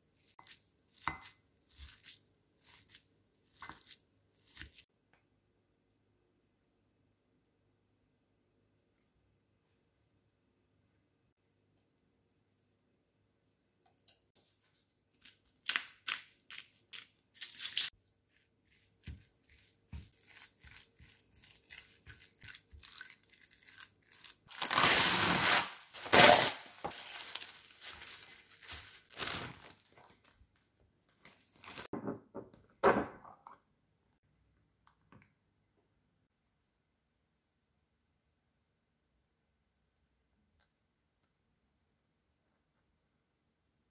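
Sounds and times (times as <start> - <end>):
cling wrap tearing and crinkling: 15.6 - 17.9, 20.1 - 30.3, 31.3 - 31.9
pepper grinder grinding: 15.7 - 17.9.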